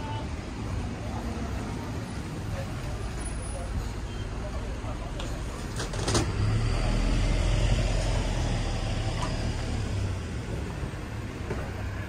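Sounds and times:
passing vehicle engine rumble: 0.4s - 12.0s.

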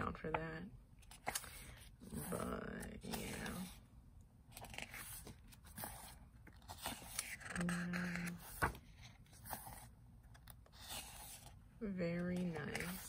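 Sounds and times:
photobook pages turning: 1.0s - 3.8s, 4.5s - 11.6s, 12.2s - 13.0s
paper scraping: 4.6s - 9.9s, 10.6s - 11.6s, 12.2s - 13.0s.

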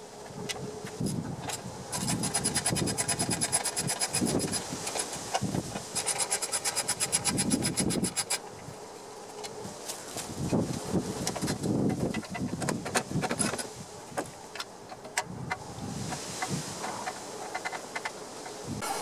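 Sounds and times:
ratchet wrench clicking: 1.9s - 5.0s, 6.0s - 8.4s.

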